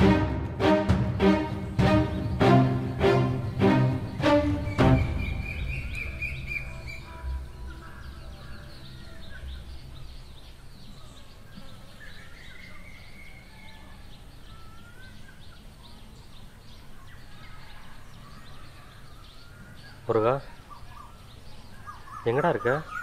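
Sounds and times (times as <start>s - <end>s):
background music: 0.0s - 10.6s
small birds chirping: 1.2s - 23.0s.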